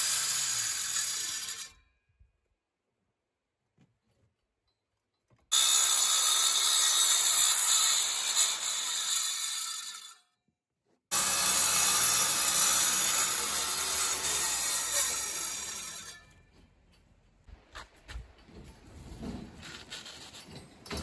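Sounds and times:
angle grinder cutting concrete: 0:00.0 - 0:01.8, 0:05.5 - 0:10.2, 0:11.1 - 0:16.2.

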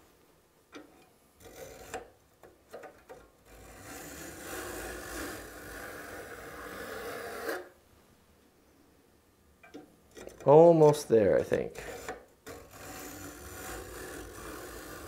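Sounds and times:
file scraping saw teeth: 0:01.4 - 0:02.1, 0:03.4 - 0:07.7, 0:11.7 - 0:15.0.

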